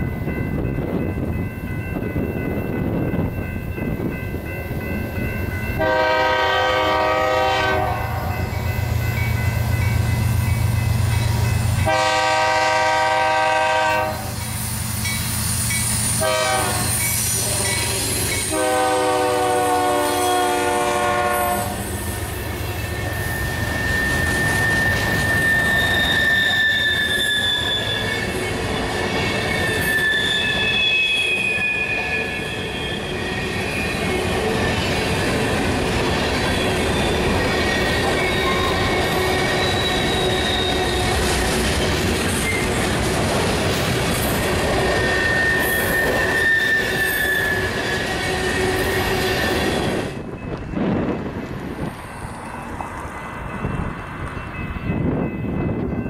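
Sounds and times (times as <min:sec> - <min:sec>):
train wheel squeal: 0:00.0 - 0:42.9, 0:44.1 - 0:56.0
train air horn: 0:05.8 - 0:08.4, 0:11.8 - 0:14.4, 0:16.2 - 0:22.0.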